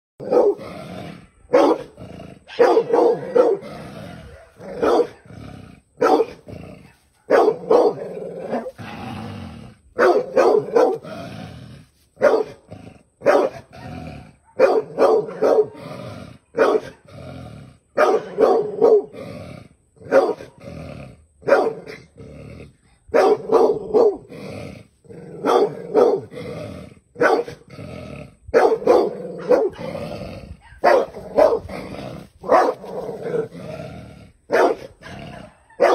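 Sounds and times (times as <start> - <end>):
dog barking: 0.2 - 0.6, 1.5 - 5.3, 6.0 - 8.8, 10.0 - 11.1, 12.2 - 12.6, 13.2 - 15.8, 16.5 - 17.0, 18.0 - 19.1, 20.0 - 20.5, 21.4 - 22.0, 23.1 - 24.2, 25.4 - 26.3, 27.2 - 27.6, 28.6 - 30.0, 30.6 - 33.5, 34.5 - 35.9.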